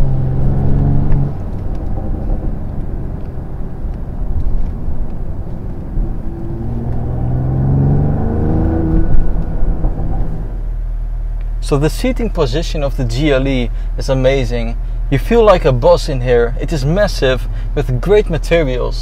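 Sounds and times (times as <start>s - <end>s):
car engine accelerating: 0.0s - 12.4s.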